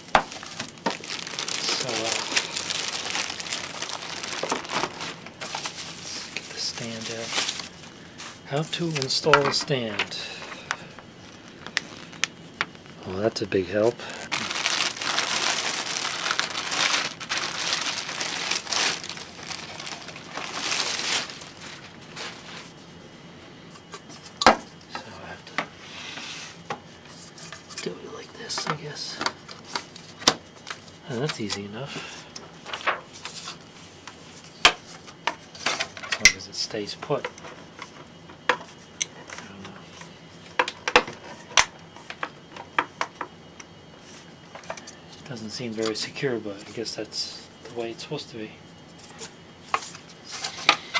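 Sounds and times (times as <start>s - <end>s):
plastic wrapping crinkling: 0.0s - 7.9s, 11.5s - 22.6s.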